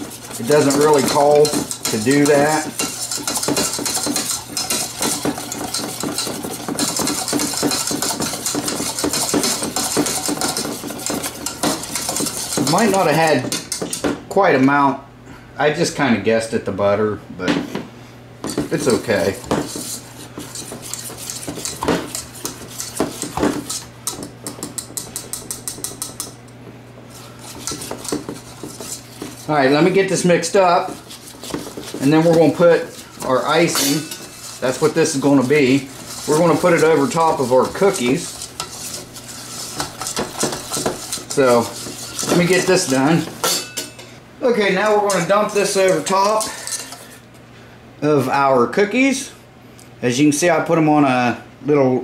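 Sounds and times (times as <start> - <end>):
whisk clicking against metal pan: 0.0 - 14.1, 18.8 - 26.4, 27.5 - 43.6, 44.8 - 46.8.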